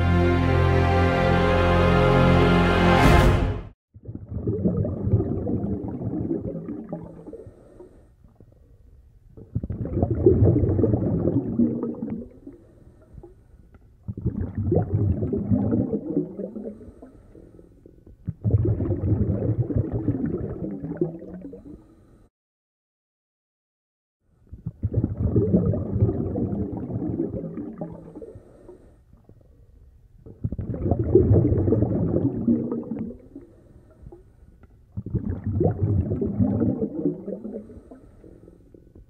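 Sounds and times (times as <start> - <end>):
underwater regulator bubbling: 4.0 - 21.9, 24.5 - 39.0
quiet regulator inhalations: 7.1 - 9.0, 12.4 - 13.8, 16.6 - 18.1, 21.5 - 22.3, 27.9 - 30.0, 33.2 - 34.9, 37.4 - 39.0.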